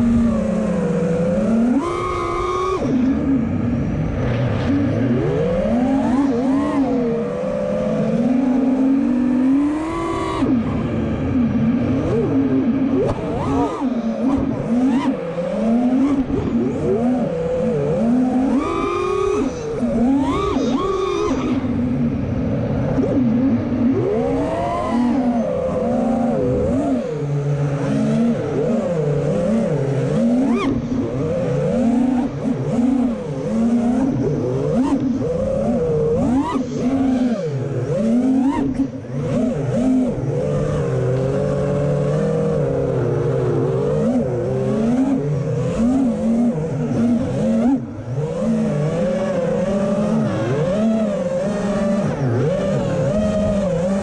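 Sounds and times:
quadcopter motors whining: 0:00.0 - 0:54.0.

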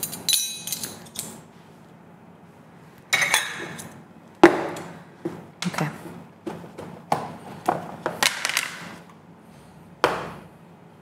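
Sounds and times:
metal spoons jangling: 0:00.0 - 0:01.4.

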